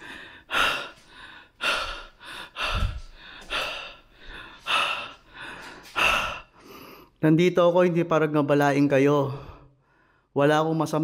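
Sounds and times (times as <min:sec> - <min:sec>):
man panting: 0:00.0 - 0:07.2.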